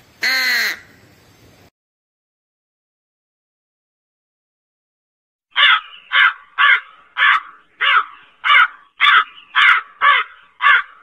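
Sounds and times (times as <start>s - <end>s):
crow cawing: 0.2s - 0.9s, 5.5s - 11.0s.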